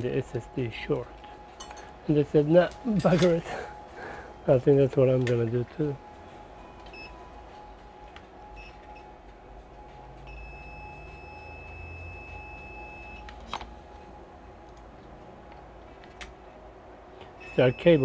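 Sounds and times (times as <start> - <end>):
multimeter beeps: 2.0 - 14.2, 17.4 - 18.0.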